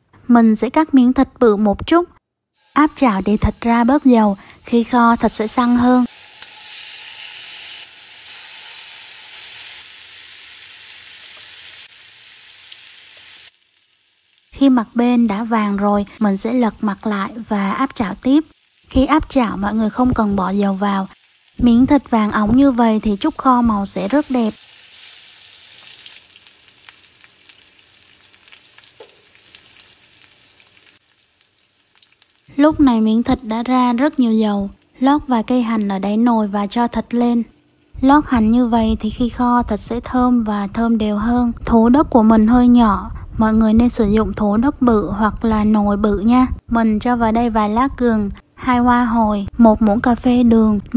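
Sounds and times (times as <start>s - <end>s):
meat sizzling in a frying pan: 2.6s - 14.8s, 18.0s - 32.5s.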